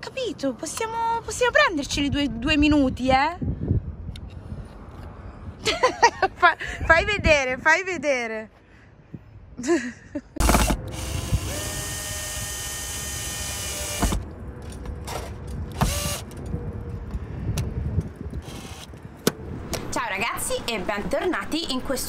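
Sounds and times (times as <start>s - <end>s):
cordless drill motor whine: 10.4s - 14.2s, 15.7s - 16.4s, 18.4s - 18.9s.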